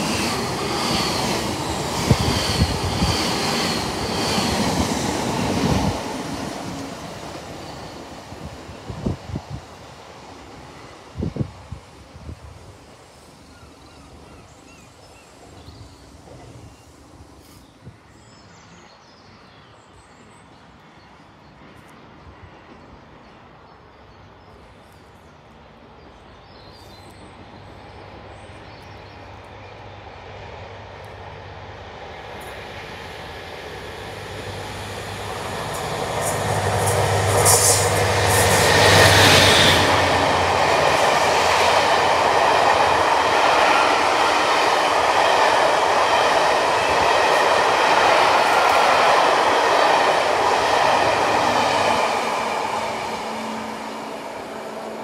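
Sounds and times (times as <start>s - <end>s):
train wheels rumbling on track: 0.0s - 14.5s, 30.1s - 55.0s
diesel locomotive engine: 0.0s - 17.6s, 27.3s - 55.0s.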